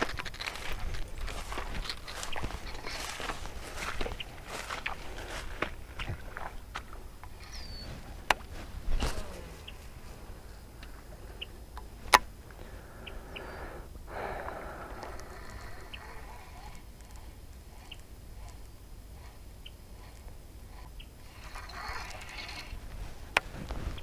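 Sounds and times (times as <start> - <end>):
bird chirps: 7.3 - 8.1, 9.0 - 11.6
fishing reel winding: 20.0 - 22.8
fishing reel clicks: 20.1 - 22.8.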